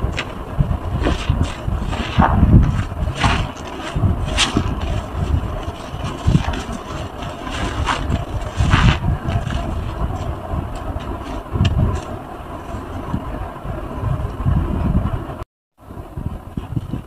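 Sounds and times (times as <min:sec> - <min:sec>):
crackling suds: 0:00.0 - 0:13.6.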